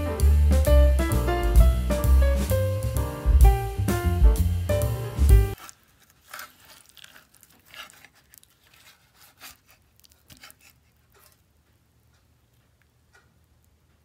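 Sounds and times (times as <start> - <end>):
metal spoon scraping casserole: 5.6 - 11.4.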